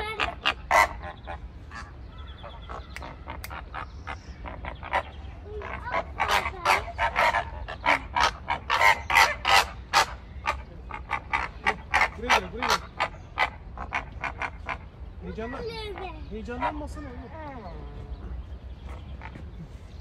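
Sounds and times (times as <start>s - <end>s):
flamingos honking: 0.0s - 15.0s.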